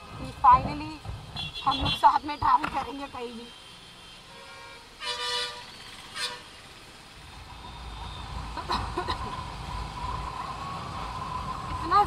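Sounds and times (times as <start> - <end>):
vehicle horn beeping: 1.4 - 2.2, 3.4 - 6.6.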